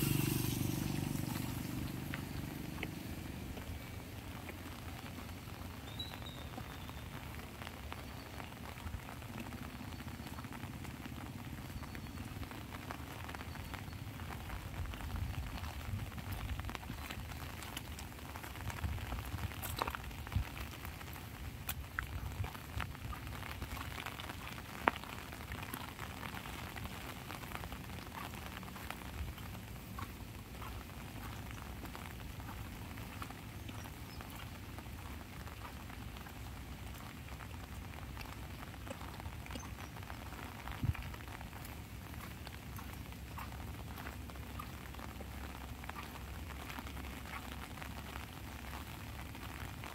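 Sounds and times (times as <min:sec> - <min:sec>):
low rumble: 0:00.0 - 0:05.8
rain on an umbrella: 0:00.0 - 0:49.9.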